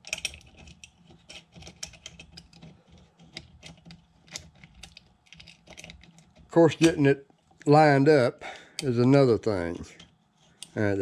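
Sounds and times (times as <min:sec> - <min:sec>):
small metal parts clicking: 0:00.0 - 0:07.7.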